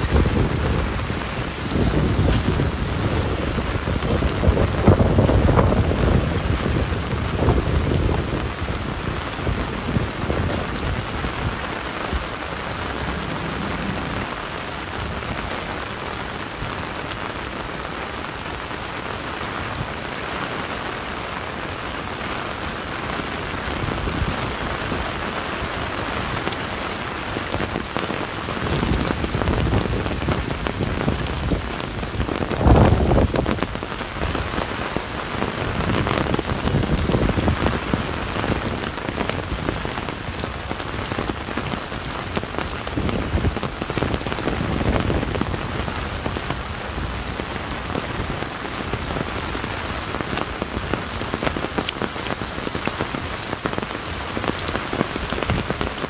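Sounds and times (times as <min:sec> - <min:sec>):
low thunder rumbles: 0:00.0 - 0:16.7
rain pattering on surfaces: 0:00.0 - 0:56.0.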